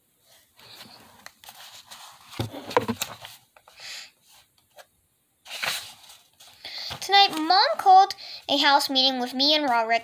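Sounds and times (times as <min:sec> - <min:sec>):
book bump: 0:02.4 - 0:03.2.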